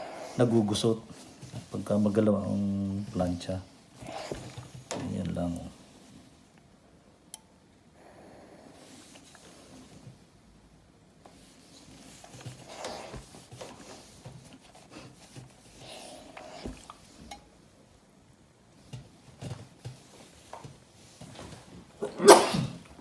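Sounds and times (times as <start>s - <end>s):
fabric rustling: 0.4s - 6.4s, 11.2s - 17.6s
iron sliding on fabric: 11.2s - 17.3s.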